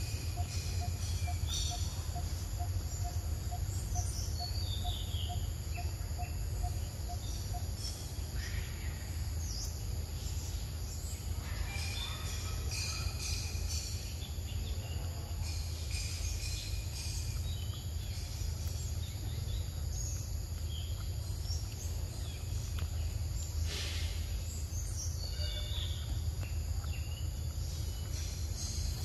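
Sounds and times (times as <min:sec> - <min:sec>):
bird chirps: 0:00.0 - 0:10.6, 0:11.5 - 0:29.0
steady low rumble: 0:13.2 - 0:29.0.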